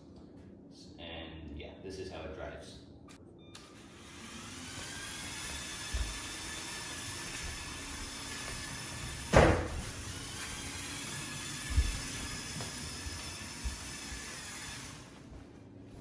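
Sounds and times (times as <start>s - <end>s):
toy car motor whine: 3.7s - 9.3s, 9.9s - 15.1s
loud thump: 9.3s - 9.8s.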